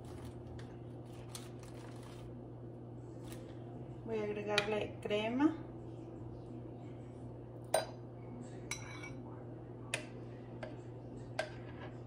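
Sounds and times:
faint low hum: 0.0s - 12.0s
metal spoon clinking on glass: 8.7s - 9.2s.

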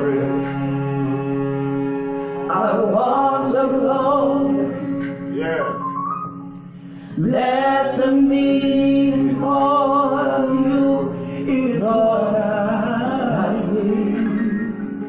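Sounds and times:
woman singing into a microphone: 7.2s - 15.0s.

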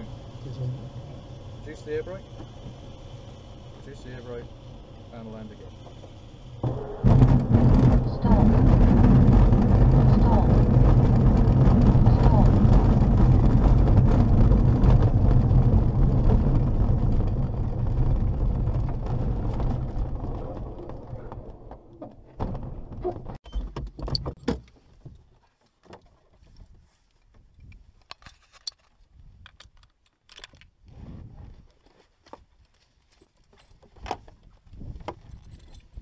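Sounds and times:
wheel rumbling over grass: 0.0s - 23.4s
clicks and clinks of fittings: 27.1s - 30.7s.

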